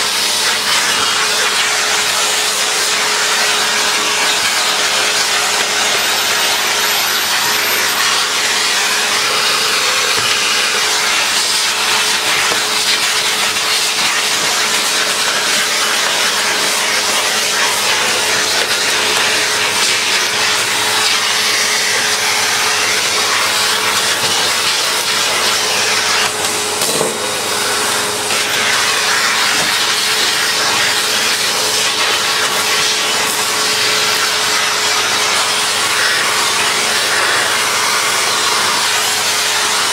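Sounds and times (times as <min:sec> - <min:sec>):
vacuum cleaner running: 0:00.0 - 0:39.9.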